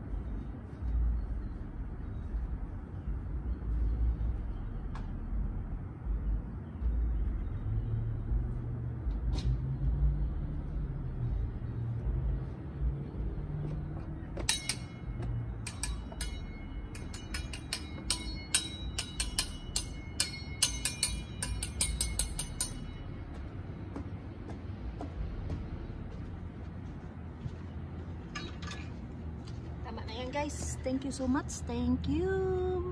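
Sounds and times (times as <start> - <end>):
low rumble: 22.7 - 31.3.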